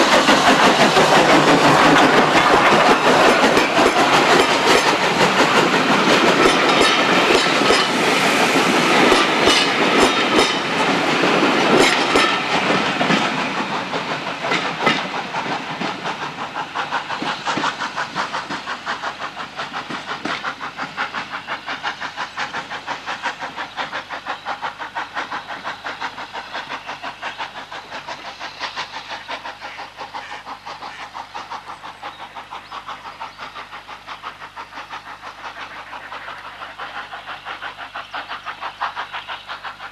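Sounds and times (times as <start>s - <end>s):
steam train passing: 0.0s - 39.9s
train wheels clicking on rail joints: 0.0s - 39.9s.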